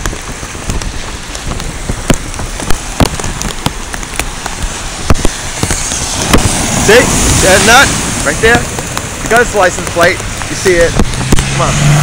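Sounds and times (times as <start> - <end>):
raindrops tapping: 0.0 - 12.0
steady rain: 0.0 - 12.0
tyres through floodwater: 0.0 - 12.0.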